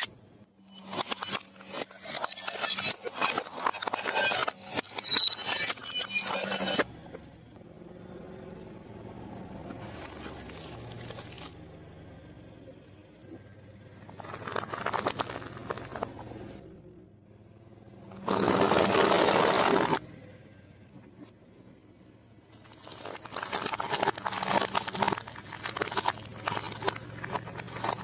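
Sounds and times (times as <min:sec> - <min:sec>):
car tyre rolling on concrete: 0:07.0 - 0:28.0
snacks crunching under tyre: 0:09.7 - 0:11.6, 0:14.1 - 0:16.6, 0:18.1 - 0:20.0, 0:22.6 - 0:28.0.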